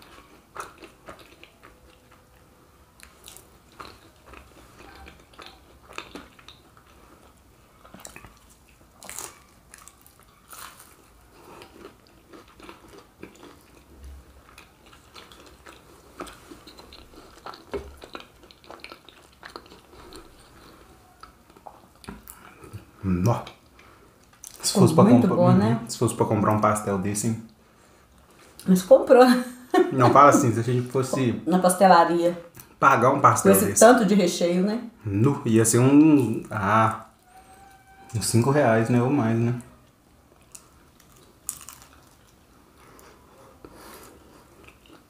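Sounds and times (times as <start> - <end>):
crunching and chewing pastry: 0.0 - 24.7, 39.6 - 45.0.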